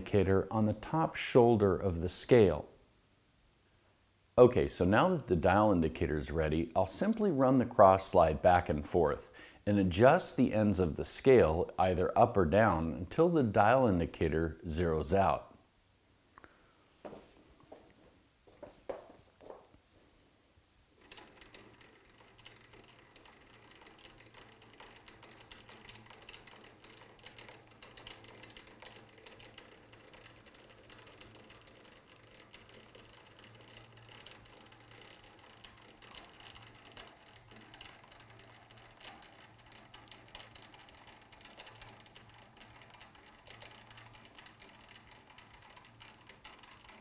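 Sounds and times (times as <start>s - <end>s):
lathe handwheel clicking and rattling: 21.0s - 47.0s.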